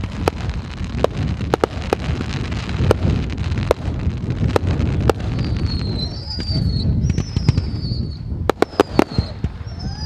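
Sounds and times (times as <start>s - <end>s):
continuous low rumble: 0.0s - 10.0s
fireworks bangs: 0.0s - 10.0s
high whistle: 5.4s - 10.0s.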